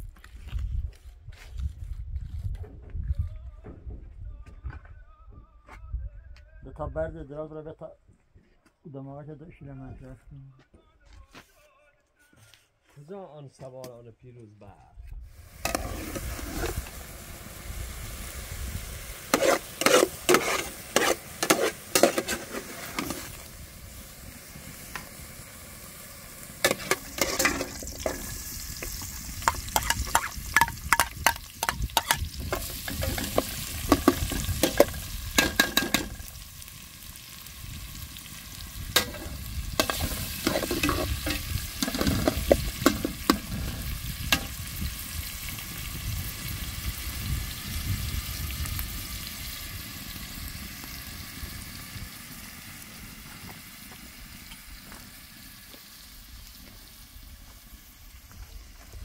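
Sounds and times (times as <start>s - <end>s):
food sizzling in a pan: 15.3s - 59.0s
utensil scraping a pan: 15.6s - 17.0s, 19.3s - 23.5s, 26.6s - 36.2s, 39.0s - 44.6s.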